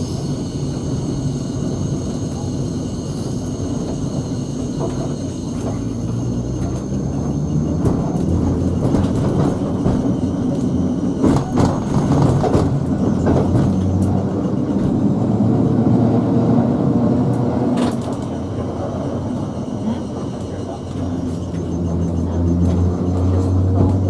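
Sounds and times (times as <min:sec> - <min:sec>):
wheels clicking on rails: 0:00.0 - 0:15.1
tram rumble and hum: 0:00.0 - 0:24.0.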